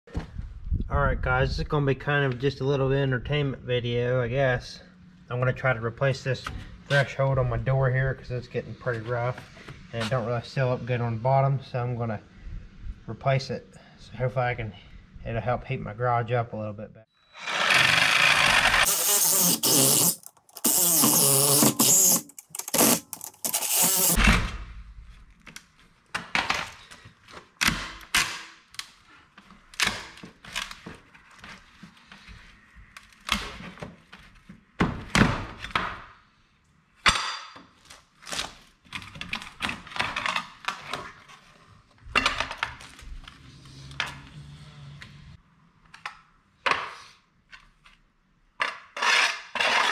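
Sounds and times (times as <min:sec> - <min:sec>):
reciprocating saw cutting wood: 0:17.4 - 0:24.2.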